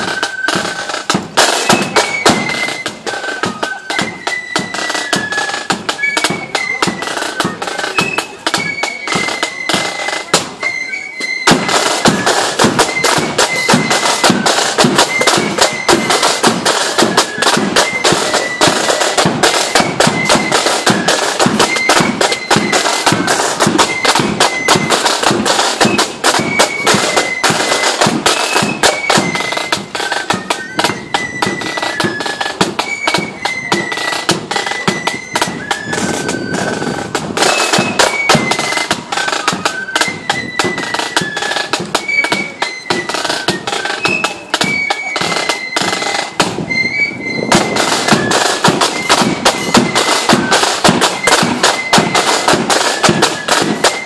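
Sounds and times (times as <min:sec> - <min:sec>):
flute melody: 0:00.0 - 0:54.0
snare drum beats and rolls: 0:00.0 - 0:54.0.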